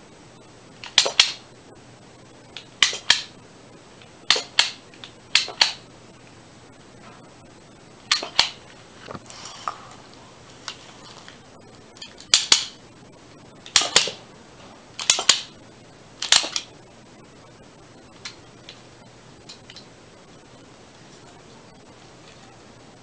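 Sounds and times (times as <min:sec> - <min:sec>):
toy pistol shots double snap: 0:13.7 - 0:14.2.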